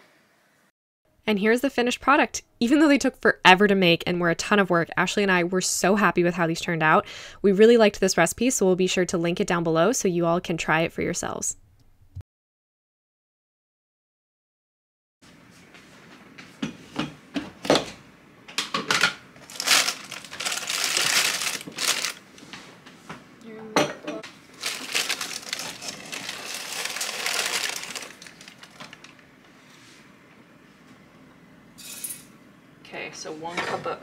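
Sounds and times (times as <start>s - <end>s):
plastic bag crinkling: 19.4s - 22.5s, 24.4s - 29.2s.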